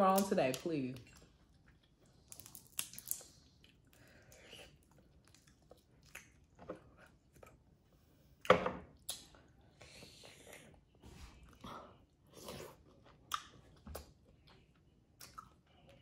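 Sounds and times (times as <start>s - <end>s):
wet squishy sounds: 0.0s - 7.7s.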